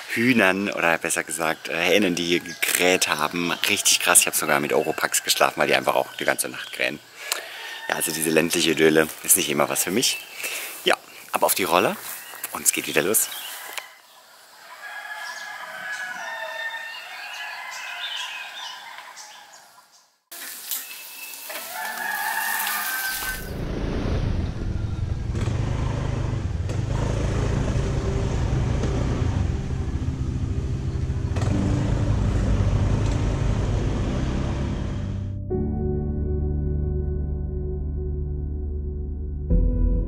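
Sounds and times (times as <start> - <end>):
chickens calling: 0.0 - 23.5
roosters crowing: 0.2 - 11.0, 11.6 - 23.6
steady low-pitched sound: 23.5 - 40.0.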